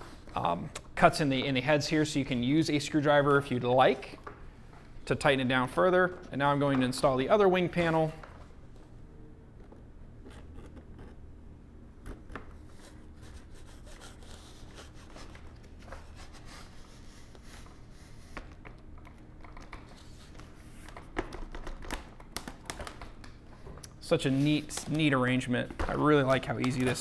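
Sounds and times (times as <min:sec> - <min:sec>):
low steady hum: 0:00.0 - 0:27.0.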